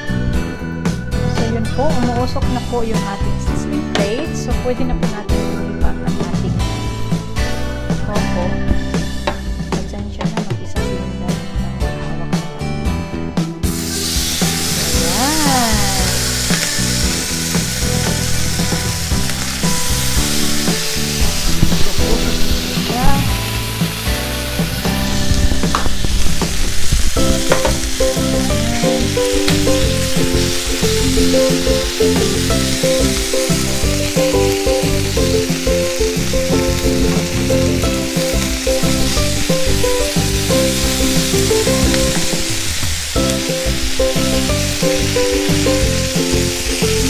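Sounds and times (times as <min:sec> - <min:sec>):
food sizzling on a hot plate: 0:13.6 - 0:47.0.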